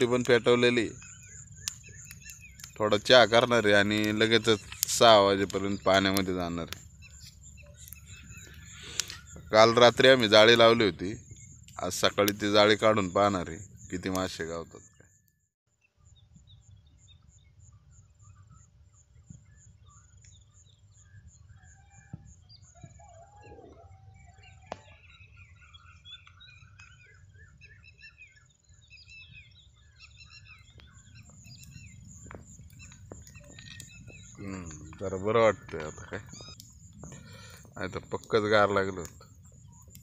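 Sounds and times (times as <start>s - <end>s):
birds chirping and warbling: 0.0s - 40.0s
sharp clicks: 0.2s - 9.5s, 30.7s - 40.0s
high insect trill: 29.2s - 40.0s.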